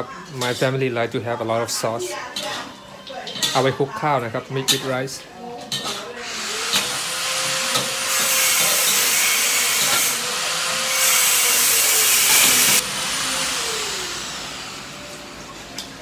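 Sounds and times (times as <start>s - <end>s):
food sizzling in a wok: 5.9s - 15.4s.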